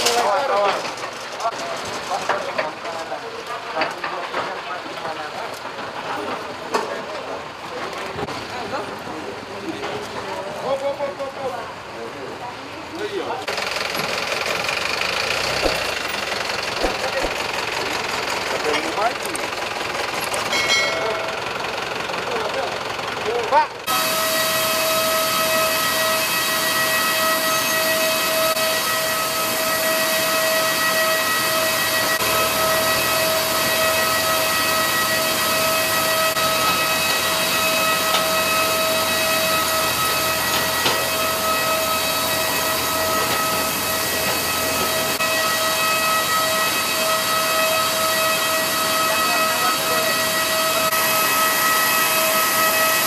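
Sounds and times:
turbine whine: 0:13.4 - 0:53.0.

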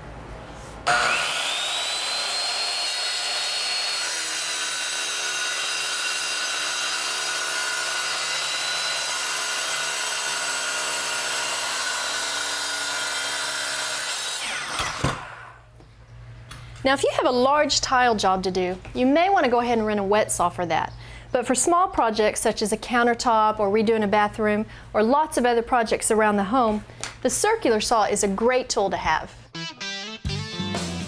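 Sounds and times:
circular saw whining: 0:00.8 - 0:15.7
saw cutting ceramic tile: 0:00.9 - 0:15.5.

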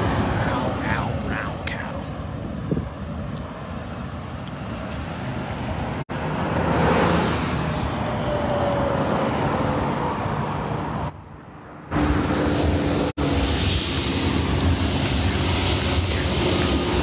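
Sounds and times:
road traffic rushing: 0:00.0 - 0:17.0
vehicle passing by: 0:04.6 - 0:17.0.

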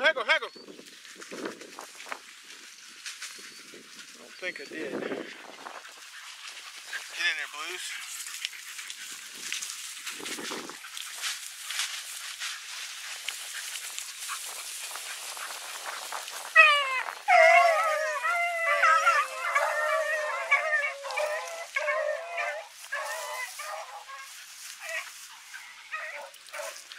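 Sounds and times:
grass and brush rustling: 0:00.5 - 0:26.9
dogs baying and howling: 0:10.6 - 0:26.9.

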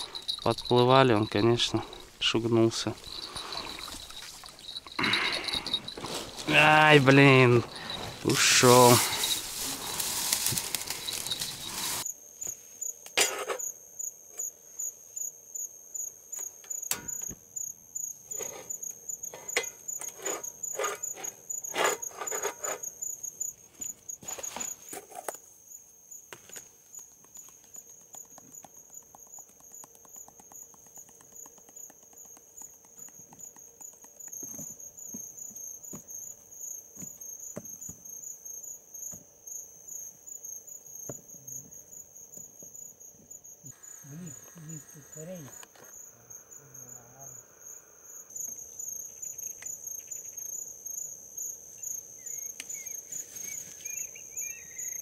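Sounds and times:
crickets chirping: 0:00.0 - 0:55.0.

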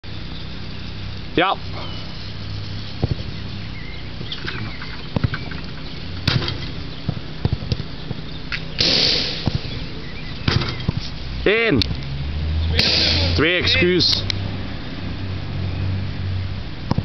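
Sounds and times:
low microphone rumble: 0:00.0 - 0:13.7
short knocks: 0:04.2 - 0:08.2, 0:10.4 - 0:11.1.

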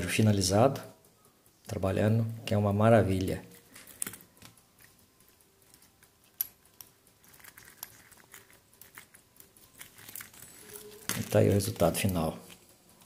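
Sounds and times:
watch bracelet links clicking: 0:03.8 - 0:12.2.

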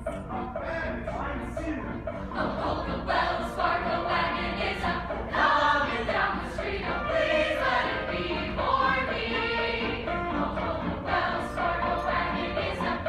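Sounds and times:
young voices singing in chorus: 0:02.4 - 0:13.0.

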